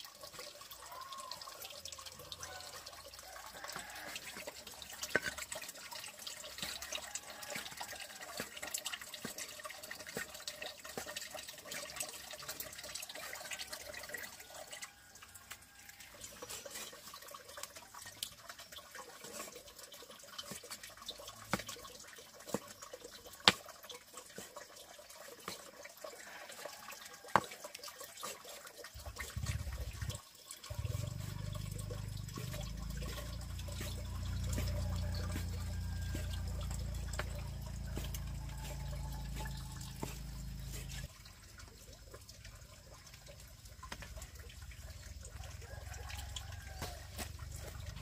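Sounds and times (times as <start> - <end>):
water dripping: 0.0 - 48.0
water running and splashing: 0.0 - 48.0.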